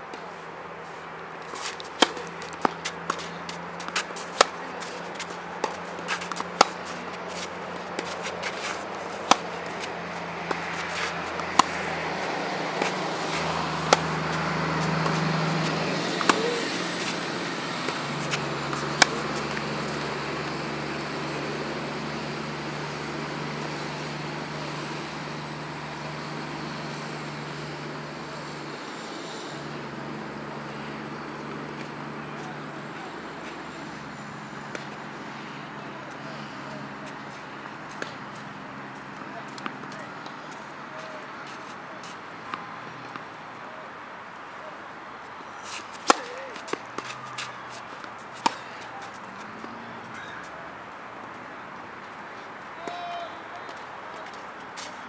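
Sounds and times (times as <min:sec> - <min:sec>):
racket hitting tennis ball: 0:01.2 - 0:25.1, 0:34.7 - 0:35.0, 0:36.1 - 0:43.3, 0:45.4 - 0:50.6
tennis ball bouncing: 0:01.3 - 0:23.7, 0:34.7 - 0:35.0, 0:36.9 - 0:43.4, 0:45.4 - 0:50.6.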